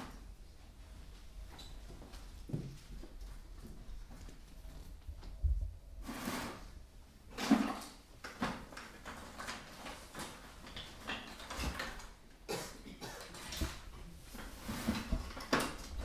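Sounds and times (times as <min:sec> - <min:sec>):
hands rummaging in plastic bucket: 0:06.1 - 0:12.2.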